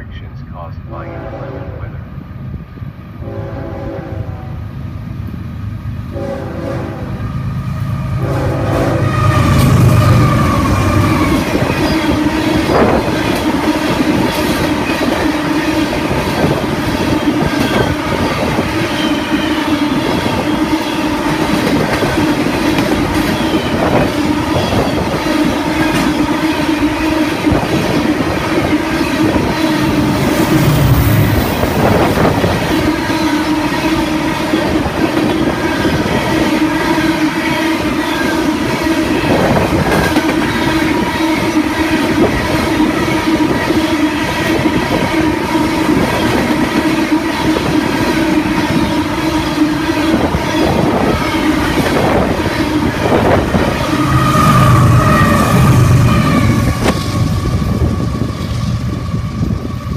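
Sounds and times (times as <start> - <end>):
diesel locomotives passing: 0.0 - 59.9
train horn blasts: 0.9 - 2.0, 3.2 - 4.7, 6.1 - 13.1, 48.3 - 58.3
train wheel clatter: 9.5 - 26.7, 27.4 - 59.9
steady whine: 51.8 - 59.0.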